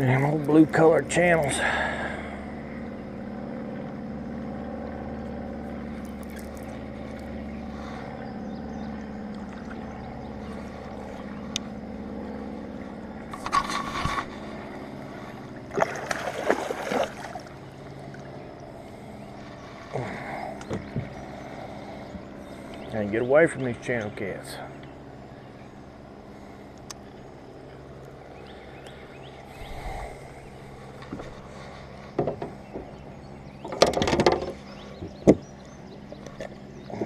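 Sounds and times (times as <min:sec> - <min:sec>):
steady low hum: 0:00.0 - 0:37.0
fish splashing into water: 0:15.7 - 0:17.6.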